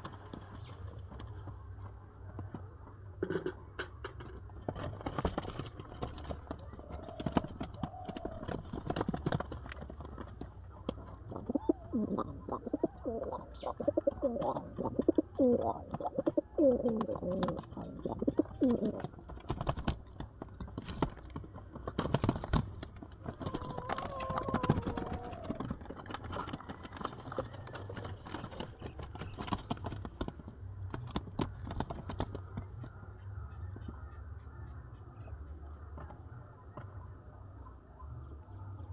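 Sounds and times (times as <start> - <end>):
pigeons scuffling: 0.0 - 33.0
pigeons cooing: 11.3 - 19.8, 23.3 - 28.7.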